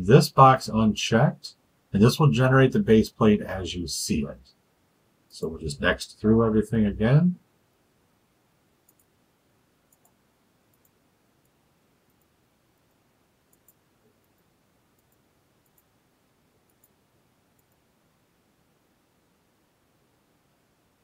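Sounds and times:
computer mouse clicks: 8.8s - 9.1s, 9.9s - 12.3s, 12.9s - 15.9s, 16.6s - 17.0s, 17.6s - 17.8s.

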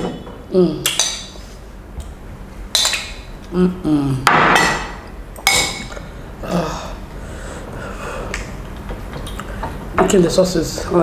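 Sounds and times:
person humming: 3.4s - 4.2s, 6.4s - 7.0s
ceramic clinking on plate: 4.5s - 5.9s.

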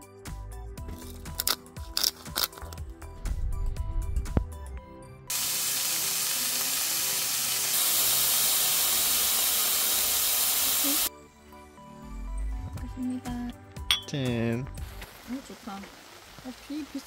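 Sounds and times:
soft background music: 0.0s - 7.8s, 10.8s - 16.0s
beef sizzling on a griddle: 5.3s - 11.1s, 14.4s - 17.0s.

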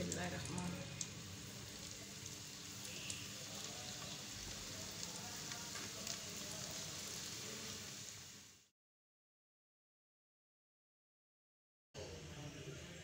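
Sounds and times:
spring rolls frying in oil: 0.0s - 8.7s.

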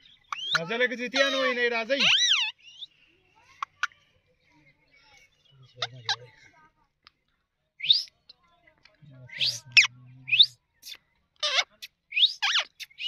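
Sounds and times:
parakeet whistled calls: 0.3s - 1.4s, 2.0s - 2.9s, 7.8s - 8.1s, 9.3s - 10.5s, 11.4s - 13.0s.

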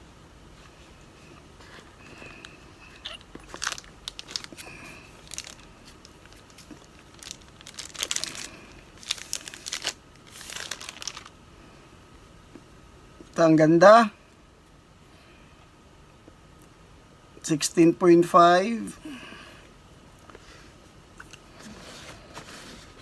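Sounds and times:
plastic wrapping crinkling: 1.7s - 11.4s.

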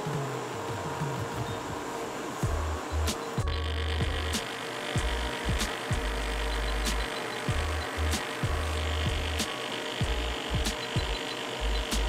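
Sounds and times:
kick drum thumps: 2.4s - 2.6s
sustained bass notes: 2.4s - 4.4s, 5.0s - 9.4s, 10.0s - 12.0s.

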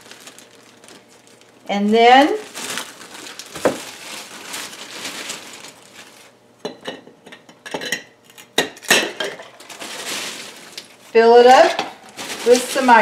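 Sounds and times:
plastic bag crinkling: 0.0s - 6.4s, 9.3s - 13.0s.

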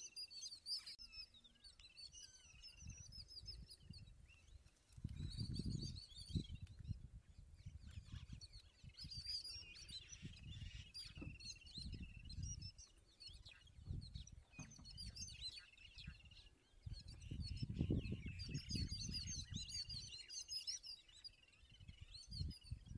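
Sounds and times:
birds chattering alarm calls: 7.6s - 22.9s.

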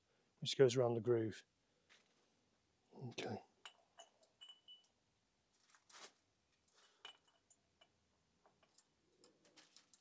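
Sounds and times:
short rustle: 5.5s - 7.0s.

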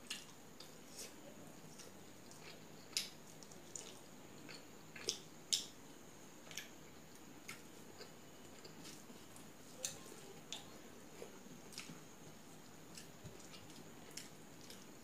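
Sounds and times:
person chewing food: 0.0s - 5.7s, 6.4s - 15.0s.

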